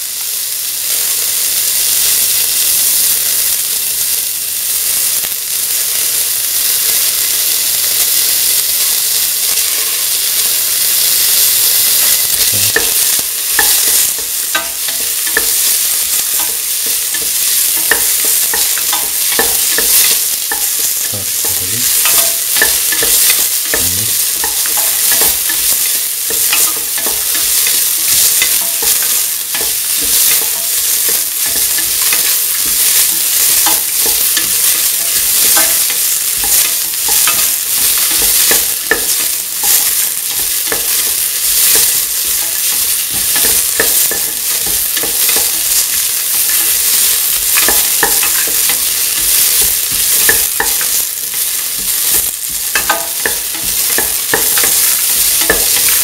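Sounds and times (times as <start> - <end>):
onions sizzling in hot oil: 0.0 - 56.0
spoon scraping a metal pan: 11.7 - 56.0.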